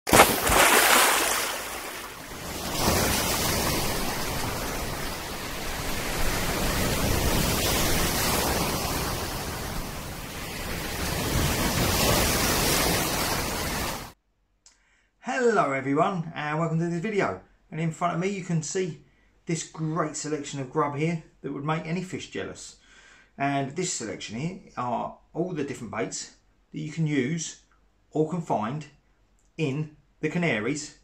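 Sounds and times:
sea waves breaking: 0:00.1 - 0:14.2.

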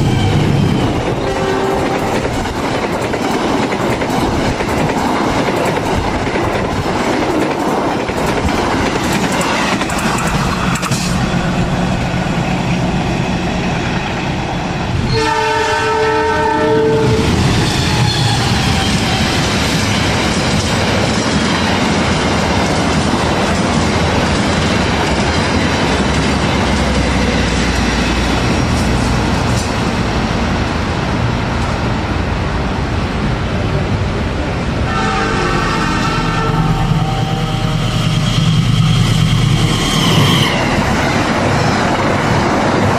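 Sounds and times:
train wheels rumbling on rails: 0:00.0 - 0:42.9
locomotive horn blast: 0:01.2 - 0:02.1, 0:15.0 - 0:17.3, 0:34.9 - 0:38.9.

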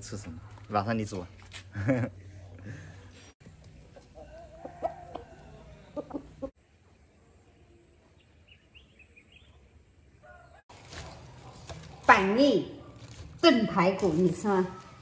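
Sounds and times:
chickens clucking: 0:03.4 - 0:06.6.

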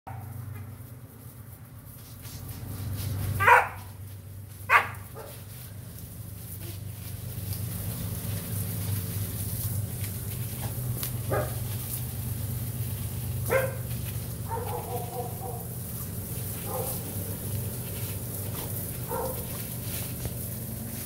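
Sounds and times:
dog barking and yelping: 0:03.4 - 0:03.9, 0:04.7 - 0:05.4, 0:13.5 - 0:15.8, 0:16.6 - 0:17.1, 0:19.0 - 0:19.6.

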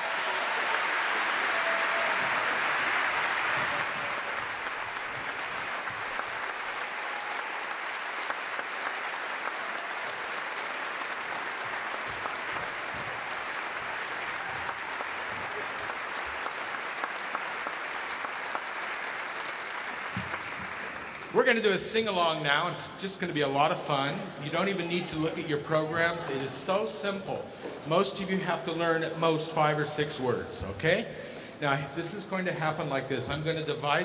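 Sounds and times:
audience applauding: 0:00.0 - 0:22.3.

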